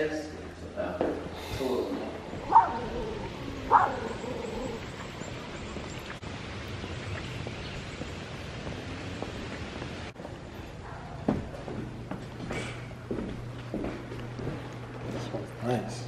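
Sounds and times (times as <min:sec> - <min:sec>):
steady background noise: 0:00.0 - 0:16.0
dog barking: 0:02.4 - 0:04.7.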